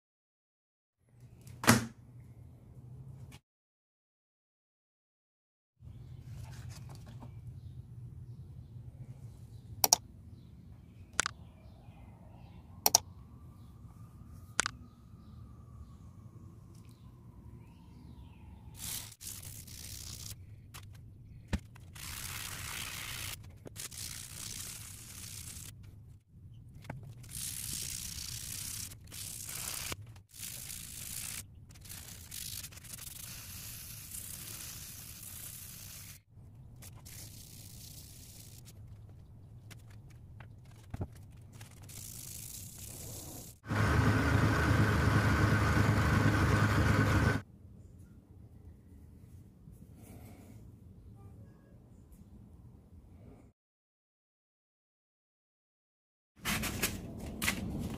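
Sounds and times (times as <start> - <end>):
mouse-click sound effects: 9.8 - 10.0, 11.2 - 11.4, 12.8 - 13.0, 14.6 - 14.8.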